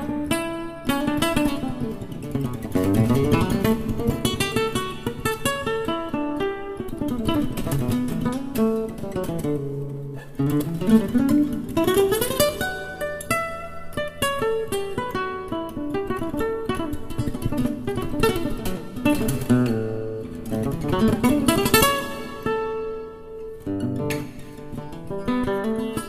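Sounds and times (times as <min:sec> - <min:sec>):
solo classical guitar: 0:00.0 - 0:26.0.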